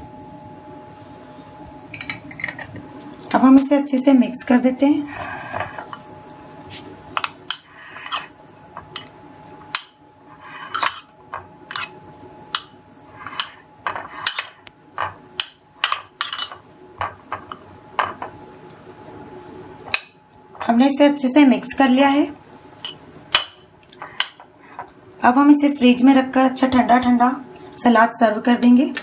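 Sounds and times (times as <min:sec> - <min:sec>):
spoon clinking and scraping glass bowl: 0:07.5 - 0:08.3, 0:10.4 - 0:11.1, 0:12.6 - 0:15.2, 0:15.8 - 0:17.2.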